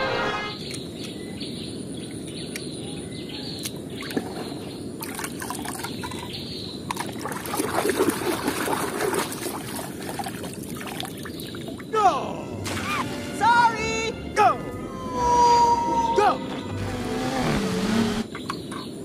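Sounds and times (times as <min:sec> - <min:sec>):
slurry squelching and sloshing: 0:06.9 - 0:11.8.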